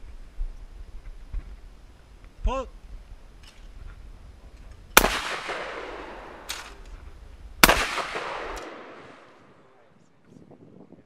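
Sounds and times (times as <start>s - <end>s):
shotgun shot echoing: 5.0s - 6.8s, 7.6s - 9.6s.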